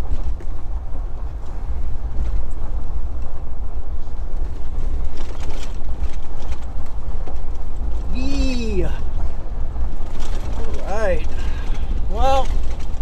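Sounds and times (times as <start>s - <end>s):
truck engine rumble: 0.0s - 13.0s
wind buffeting microphone: 0.0s - 13.0s.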